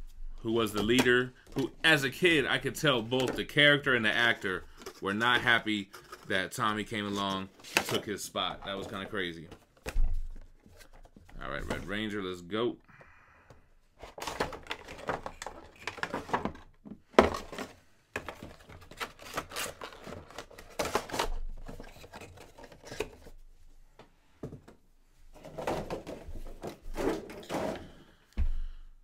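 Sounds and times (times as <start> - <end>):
packaging rustling and crinkling: 14.0 - 23.3.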